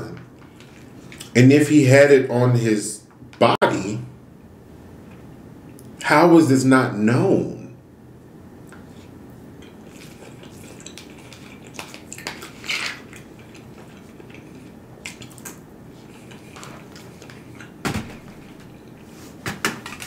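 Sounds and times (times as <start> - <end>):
chewing: 8.7 - 17.8.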